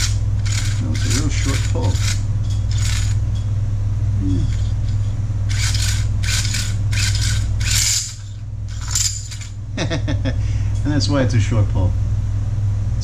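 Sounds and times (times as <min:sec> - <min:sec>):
chainsaw starter rope pulls: 0:00.0 - 0:03.2, 0:05.5 - 0:09.4
steady low hum: 0:00.0 - 0:13.0.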